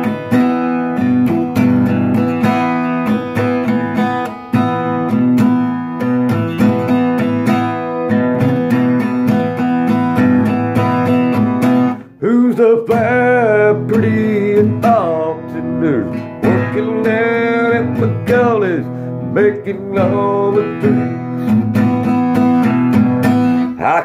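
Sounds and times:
acoustic guitar strumming: 0:00.0 - 0:24.0
person singing: 0:12.0 - 0:21.7, 0:23.5 - 0:24.0.

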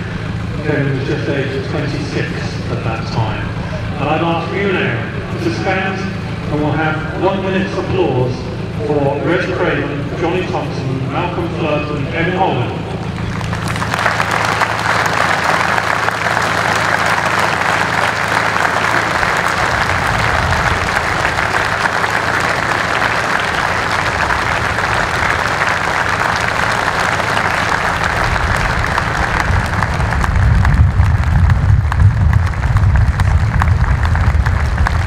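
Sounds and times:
stadium crowd applauding: 0:12.9 - 0:35.0.

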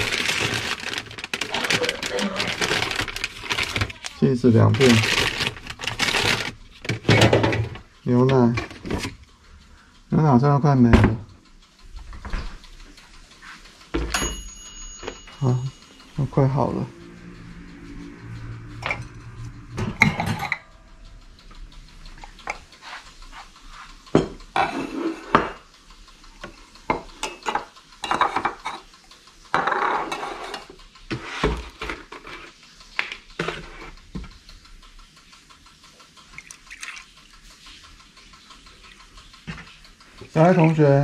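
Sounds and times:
dishes and utensils clattering: 0:04.8 - 0:07.8, 0:19.8 - 0:20.6, 0:24.2 - 0:25.6, 0:26.9 - 0:28.9, 0:29.5 - 0:34.3.

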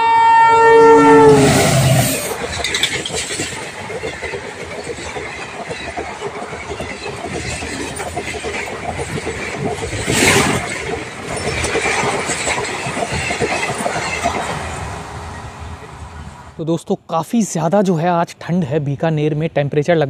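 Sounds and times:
passing train rush: 0:00.0 - 0:16.7
train wheels clattering on rails: 0:02.2 - 0:16.3.

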